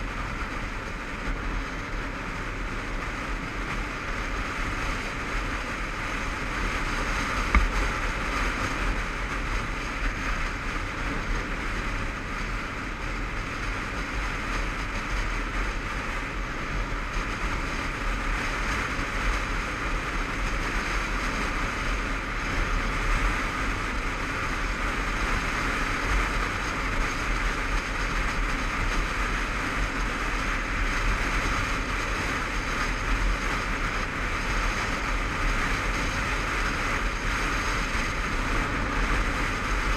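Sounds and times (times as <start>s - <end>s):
motorcycle engine drone: 0.0s - 39.9s
wind and road noise: 0.0s - 39.9s
brief knock: 7.5s - 7.8s.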